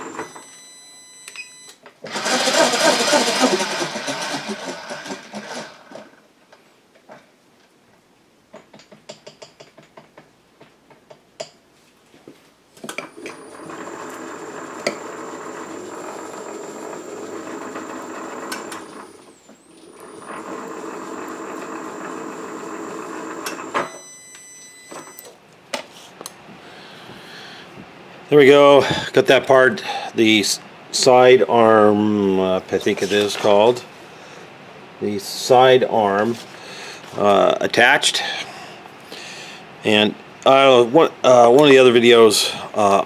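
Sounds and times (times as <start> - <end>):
milling machine motor whining: 2.0 - 6.0, 13.1 - 23.9.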